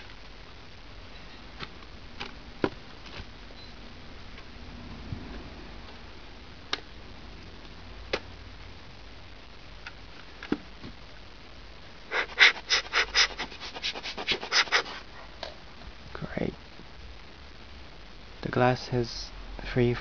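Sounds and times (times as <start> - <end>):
scratchy rubbing and scraping: 12.1 - 15.0.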